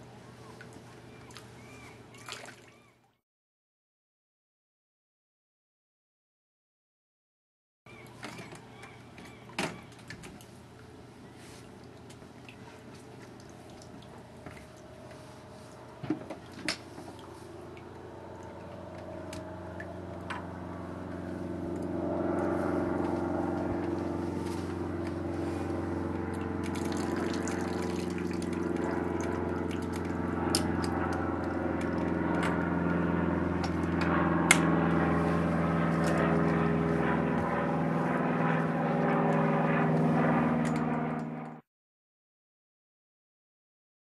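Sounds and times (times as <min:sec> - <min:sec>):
engine droning: 0:07.9 - 0:41.6.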